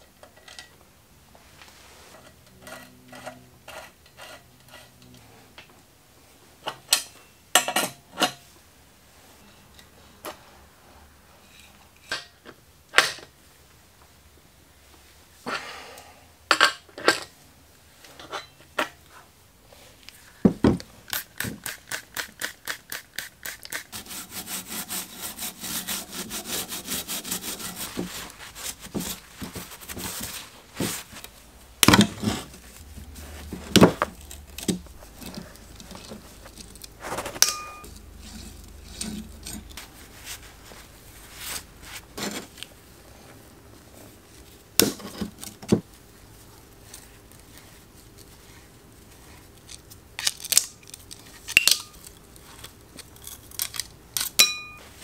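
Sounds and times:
rag scrubbing metal parts: 21.4 - 42.6.

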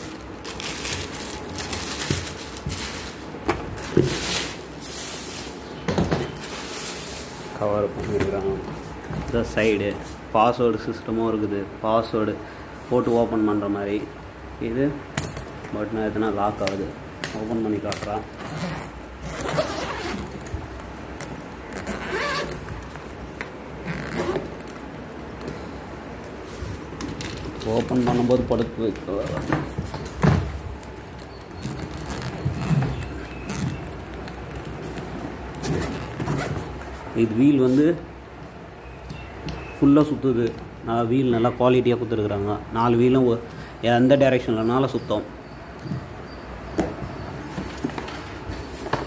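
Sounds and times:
plastic cover rustling and crinkling: 0.0 - 5.6
suitcase zipper rasping open: 18.4 - 20.5, 21.7 - 22.7, 23.8 - 24.6, 31.6 - 33.8, 35.6 - 36.7.

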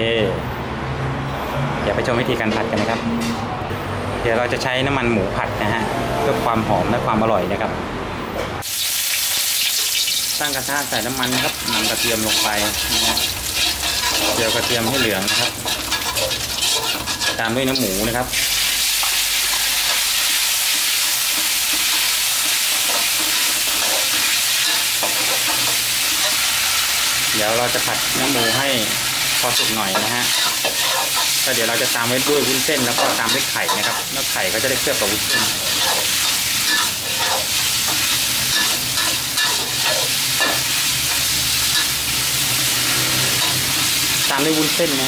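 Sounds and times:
meat sizzling in a wok: 8.6 - 45.0
spatula scraping pan: 11.2 - 17.8, 28.2 - 42.0.

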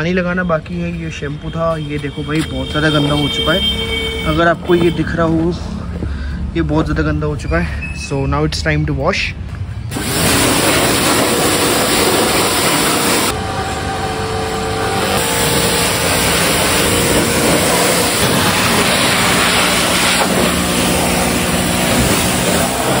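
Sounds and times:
water jet spattering on metal: 9.9 - 13.3, 15.4 - 23.0
pressure washer motor hum: 9.9 - 23.0.

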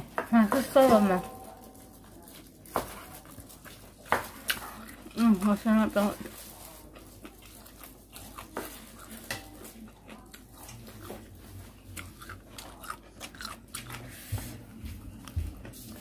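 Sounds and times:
person chewing food: 2.8 - 5.4, 6.2 - 16.0.

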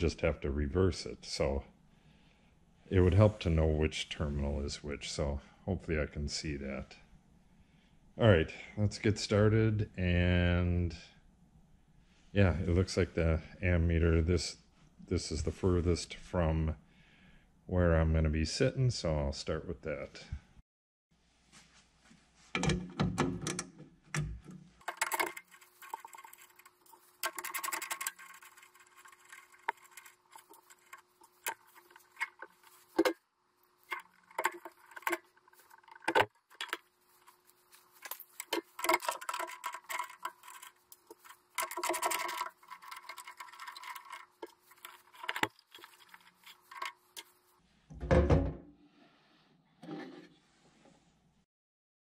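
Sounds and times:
rustling and scraping: 21.2 - 51.2
metal wire terminals rattling: 22.6 - 47.6.

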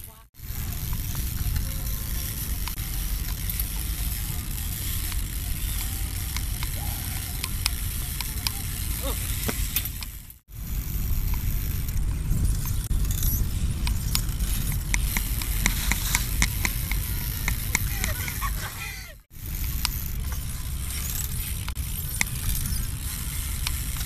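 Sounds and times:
bike rolling on concrete: 0.0 - 24.0
wind rumbling on microphone: 0.4 - 24.0
light clicks from bike: 0.7 - 10.2, 19.7 - 24.0.

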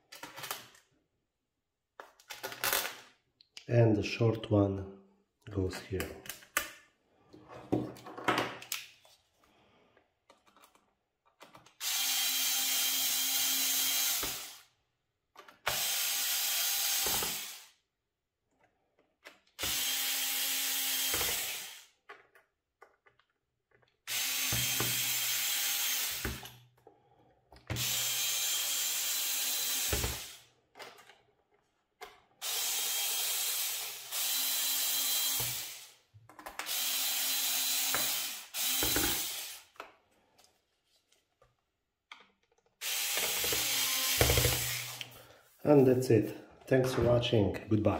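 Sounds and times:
electric screwdriver running: 11.8 - 14.7, 15.7 - 17.7, 19.6 - 21.9, 24.1 - 26.4, 27.7 - 30.4, 32.4 - 35.9, 36.7 - 39.7, 42.8 - 45.1.

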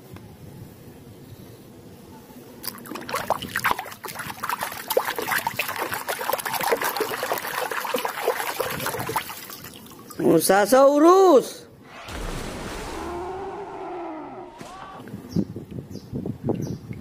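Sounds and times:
water splashing in a tub: 2.6 - 10.2.

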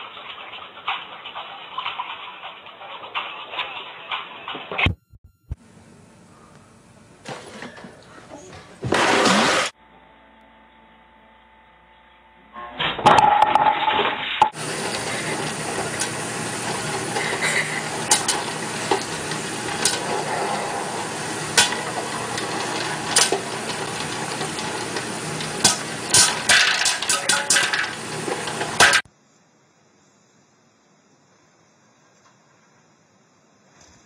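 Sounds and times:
popcorn popper sizzling hiss: 0.0 - 4.8, 6.3 - 9.8, 14.0 - 29.2
popcorn kernels popping: 14.5 - 29.1.

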